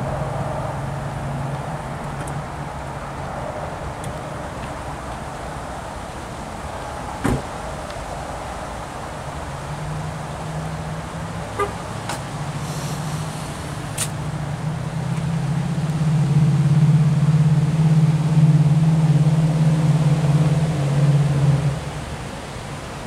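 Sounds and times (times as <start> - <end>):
car engine humming: 9.3 - 22.7.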